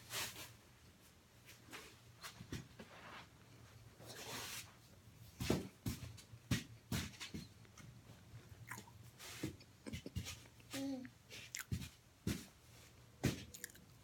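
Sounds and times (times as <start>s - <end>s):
crunchy chewing: 8.6s - 9.0s, 11.3s - 11.9s, 13.3s - 14.0s.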